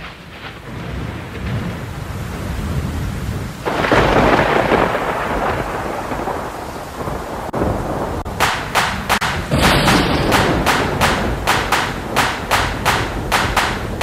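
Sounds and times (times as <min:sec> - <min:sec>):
thunder-like rumble: 0:00.0 - 0:14.0
sharp hits: 0:08.3 - 0:14.0.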